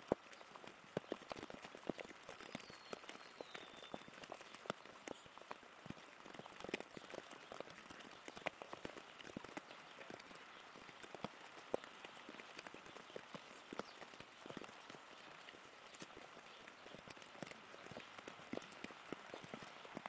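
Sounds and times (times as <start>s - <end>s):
rain dripping on leaves: 0.0s - 20.0s.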